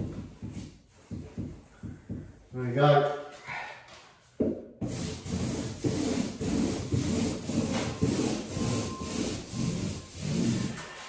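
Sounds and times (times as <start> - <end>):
paint roller swishing: 0.0 - 1.7, 4.8 - 11.0.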